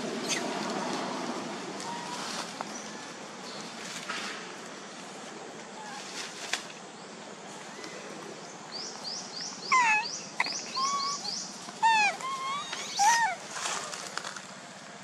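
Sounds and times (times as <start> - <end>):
baby monkeys calling: 0.2 - 0.6, 9.1 - 14.2
bird chirping: 7.0 - 13.4.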